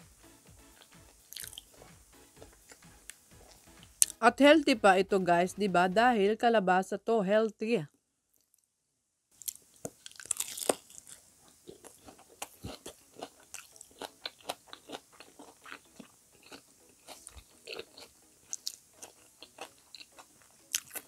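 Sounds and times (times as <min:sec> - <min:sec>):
crunching and chewing fried food: 0:00.7 - 0:04.2, 0:09.4 - 0:21.0.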